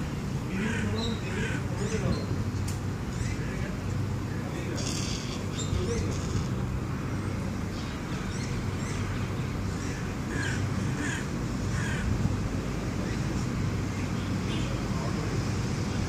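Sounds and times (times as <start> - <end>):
crow cawing: 10.3 - 12.1.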